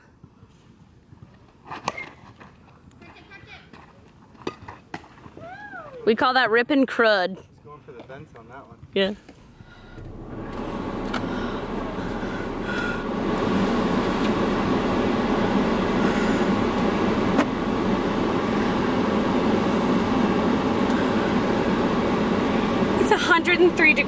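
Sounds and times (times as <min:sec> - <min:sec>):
car air conditioning fan blowing: 0:08.5 - 0:24.0.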